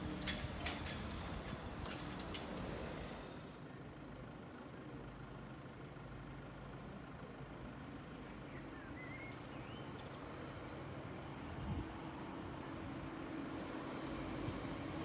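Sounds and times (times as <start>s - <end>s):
low rumble of road vehicle: 0.0s - 15.0s
outdoor background noise: 0.0s - 15.0s
faint chirps: 7.1s - 10.5s.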